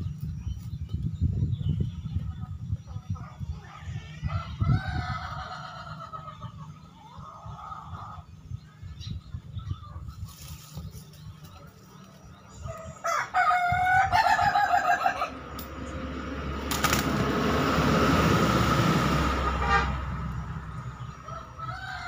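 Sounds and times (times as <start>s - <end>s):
rooster crowing: 12.7s - 15.4s, 21.0s - 22.0s
rushing noise with low rumble: 15.3s - 21.6s.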